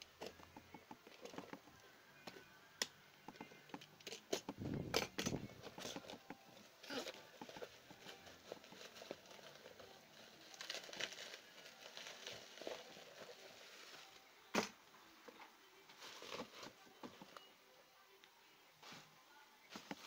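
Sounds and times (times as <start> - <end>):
bubble wrap crinkling: 6.8 - 14.4, 15.9 - 17.5.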